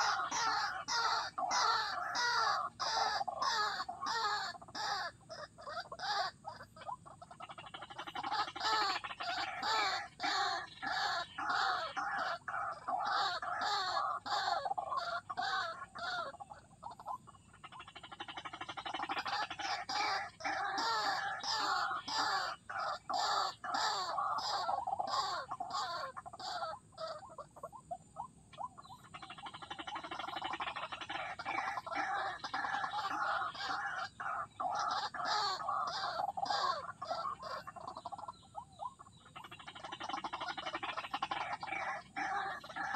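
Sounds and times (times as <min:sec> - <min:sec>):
waterhen croaking calls: 0:00.0 - 0:42.9.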